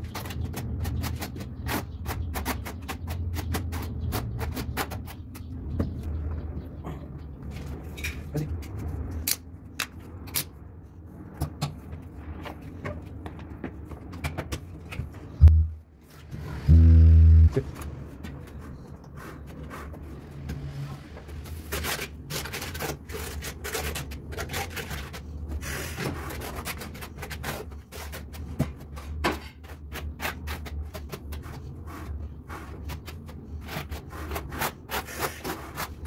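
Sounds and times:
steady low hum: 15.0s - 22.2s.

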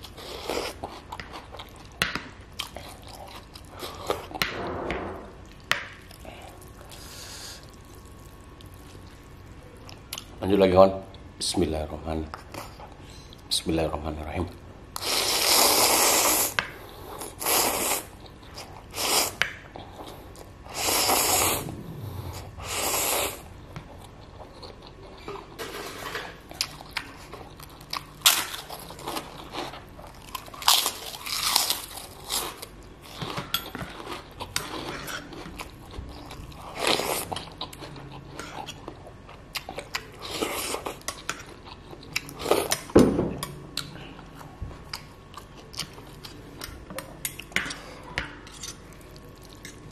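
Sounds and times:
slurping noodles: 20.7s - 23.5s.

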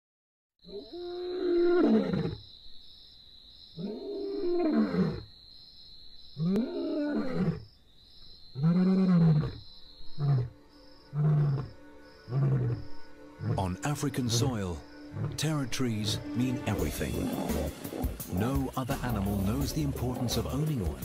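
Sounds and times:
lion roaring: 11.1s - 13.8s, 15.1s - 15.4s, 16.7s - 20.6s
lion grunt: 16.8s - 18.4s, 19.0s - 20.6s.

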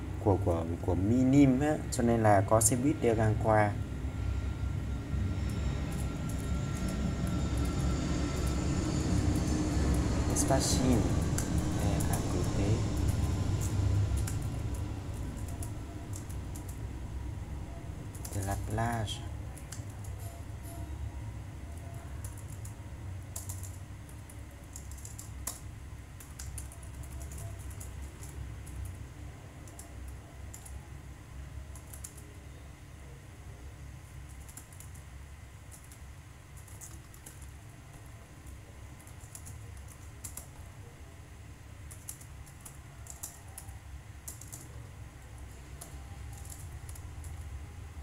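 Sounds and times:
low steady hum: 0.0s - 48.0s.

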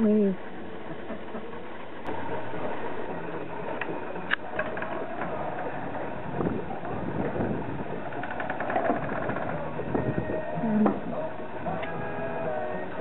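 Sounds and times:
garage door rattling up tracks: 0.4s - 10.4s.

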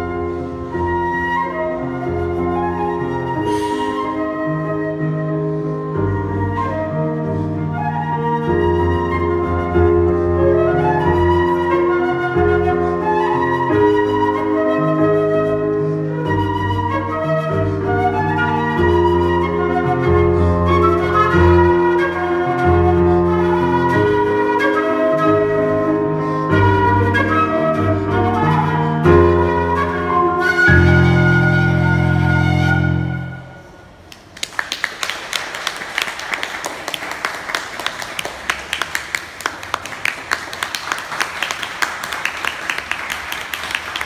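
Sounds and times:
flute melody: 0.0s - 34.1s.

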